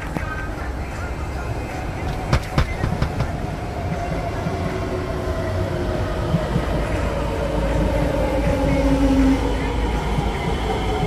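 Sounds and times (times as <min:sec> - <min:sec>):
train rumble and braking whine: 0:00.0 - 0:11.0
train wheel clicks: 0:02.1 - 0:03.4.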